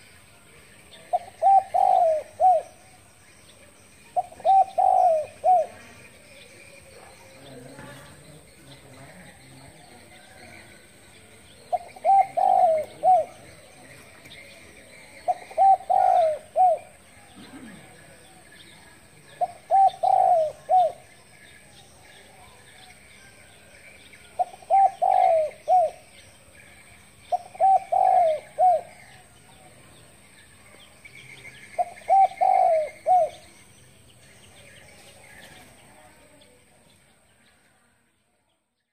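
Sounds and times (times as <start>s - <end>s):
faint bird chirping: 0.0s - 38.9s
dove cooing: 0.9s - 2.9s, 4.1s - 8.5s, 11.6s - 18.4s, 19.3s - 21.1s, 24.3s - 26.2s, 27.3s - 29.4s, 31.8s - 33.6s.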